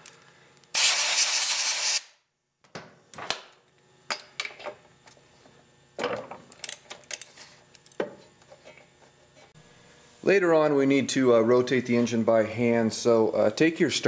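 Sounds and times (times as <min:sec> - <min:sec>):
compressed air blast: 0:00.7 - 0:02.1.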